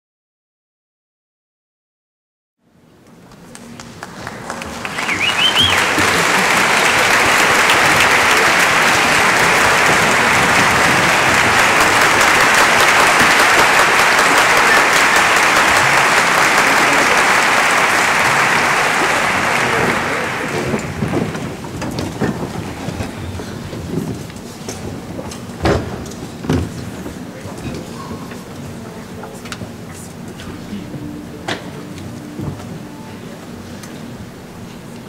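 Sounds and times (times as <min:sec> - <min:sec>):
audience applauding: 0:03.2 - 0:23.2.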